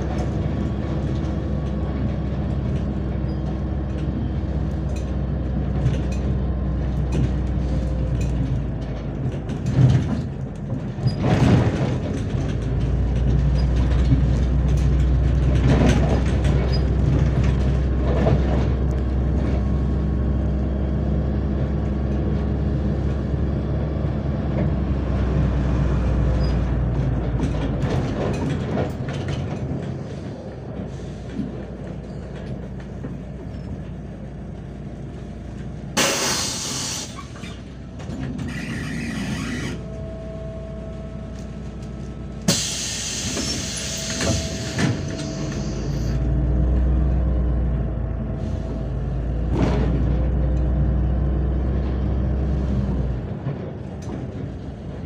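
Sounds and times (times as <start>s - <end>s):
bus diesel engine droning: 0.0s - 55.0s
road rumble: 0.0s - 55.0s
compressed air hiss: 36.0s - 37.3s, 42.5s - 44.8s.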